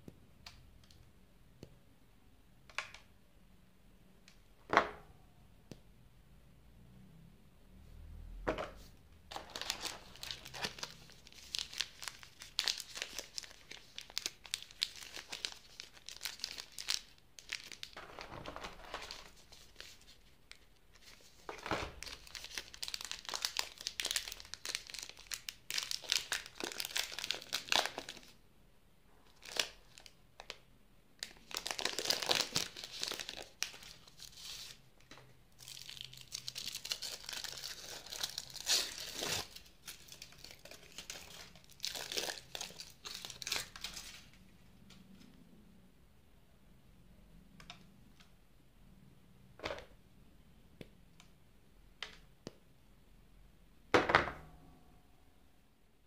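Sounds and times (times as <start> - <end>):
chocolate wrapper crinkling and tearing: 9.3 - 18.2, 18.8 - 28.3, 29.3 - 30.6, 31.2 - 34.8, 35.5 - 44.4.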